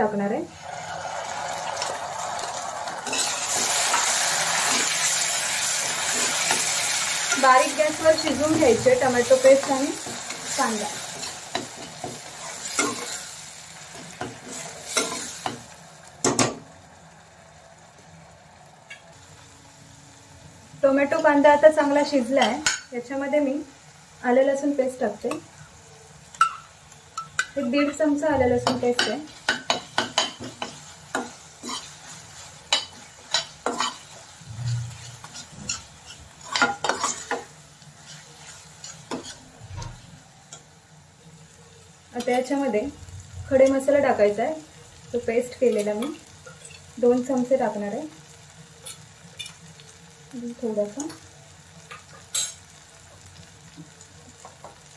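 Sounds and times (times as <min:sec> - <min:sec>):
gentle sizzle: 0:00.0 - 0:54.9
spoon clanking against pan: 0:26.4 - 0:28.0, 0:28.6 - 0:31.9, 0:32.7 - 0:34.1, 0:34.7 - 0:37.5, 0:51.9 - 0:52.7
spoon scraping a steel pan: 0:32.8 - 0:40.0.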